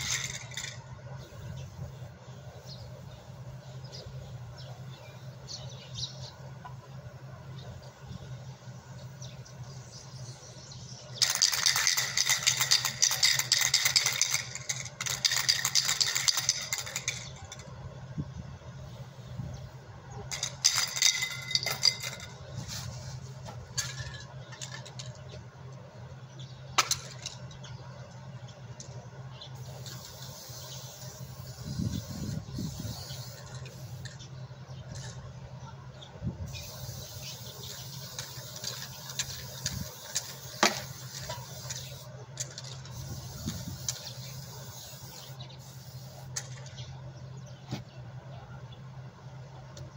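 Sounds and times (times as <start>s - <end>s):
compressors metal rattling: 0.0s - 1.7s, 11.2s - 17.9s, 20.3s - 25.4s, 29.6s - 34.3s, 36.5s - 46.8s.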